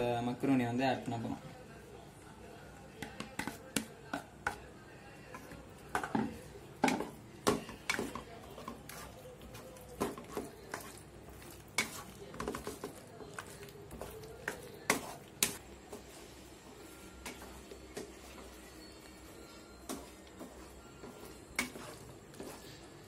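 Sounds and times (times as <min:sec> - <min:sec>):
spatula scraping metal pan: 0:19.4 - 0:23.0.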